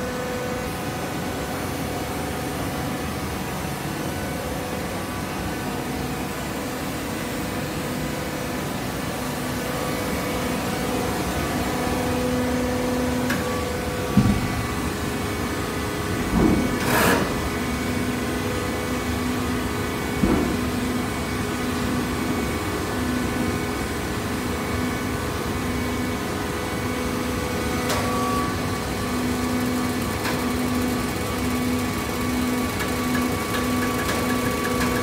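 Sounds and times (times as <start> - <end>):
hydraulic motor and pump humming: 0.0 - 35.0
machine knocks: 14.1 - 14.6.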